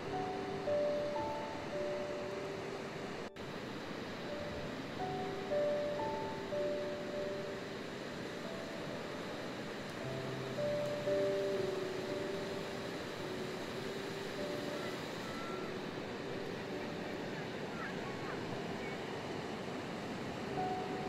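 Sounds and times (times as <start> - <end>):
soft background music: 0.0 - 21.0.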